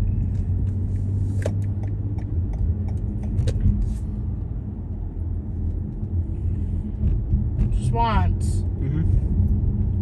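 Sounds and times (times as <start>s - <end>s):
car engine and road rumble: 0.0s - 10.0s.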